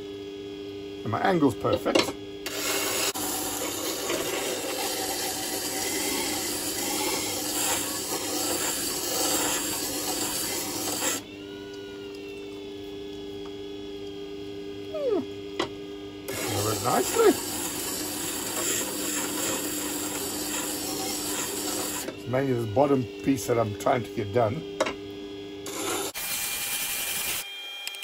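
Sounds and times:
grinder motor hum: 0.0s - 28.0s
knife grinding on whetstone: 2.5s - 11.2s, 16.3s - 22.6s, 25.7s - 27.4s.

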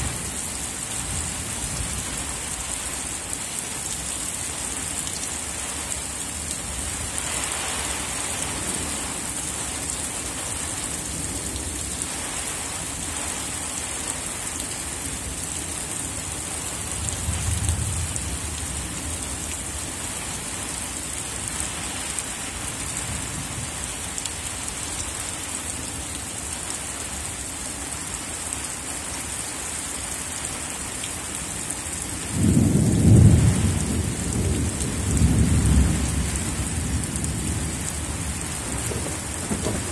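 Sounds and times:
steady rain falling: 0.0s - 39.9s
thunder rumbling: 32.4s - 39.9s.

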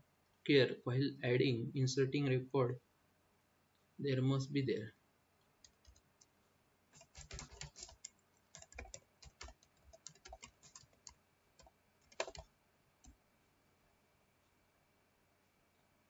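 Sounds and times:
typing on computer keyboard: 5.6s - 6.3s, 7.0s - 13.2s.

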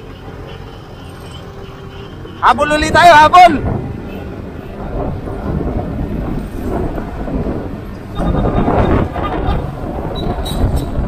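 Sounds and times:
wind buffeting microphone: 2.1s - 11.0s
motorcycle engine rumble: 3.5s - 11.0s.

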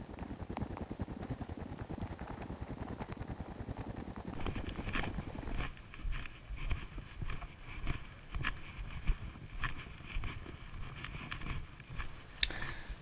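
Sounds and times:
wind rumbling on microphone: 0.0s - 13.0s
footsteps on pavement: 4.4s - 12.4s
background hiss: 12.0s - 13.0s.

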